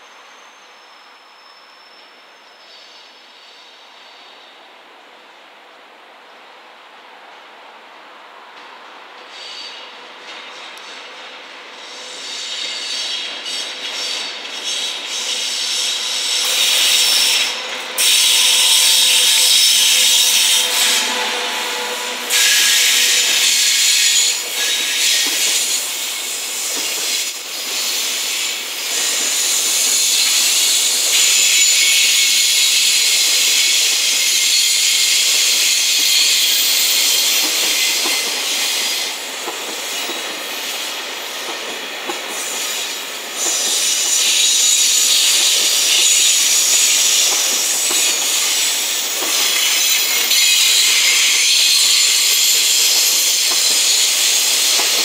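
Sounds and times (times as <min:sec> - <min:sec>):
train wheels on rails: 0:06.8 - 0:55.0.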